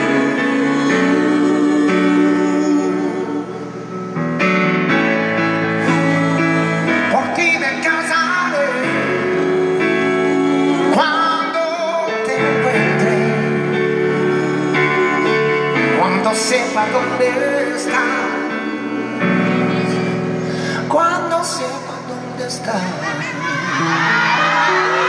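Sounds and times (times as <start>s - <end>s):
man singing with vibrato: 0.0s - 4.0s, 5.6s - 25.0s.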